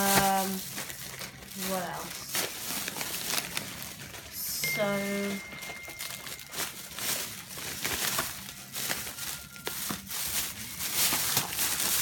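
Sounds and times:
plastic bags rustling: 0:00.0 - 0:12.0.

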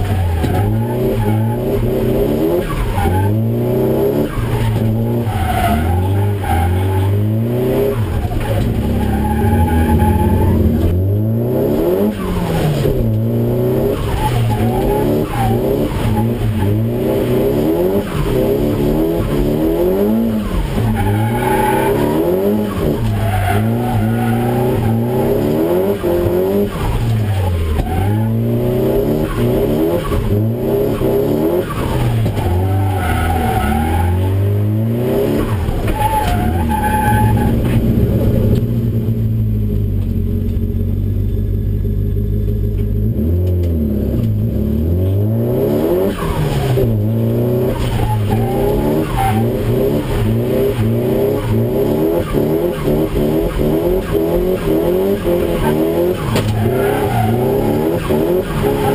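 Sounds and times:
car engine revving: 0:00.0 - 0:58.9
tyres squealing: 0:07.9 - 0:10.9, 0:31.6 - 0:34.4, 0:47.7 - 0:49.7, 0:51.3 - 0:58.9.

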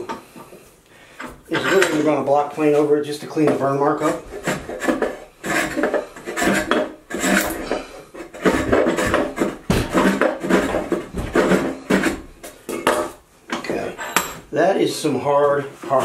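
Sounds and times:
block plane scraping wood: 0:01.5 - 0:12.8, 0:15.3 - 0:16.0.

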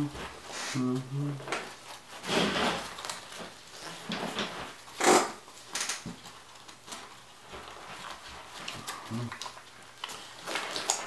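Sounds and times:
fabric rustling and scraping: 0:01.6 - 0:08.9.

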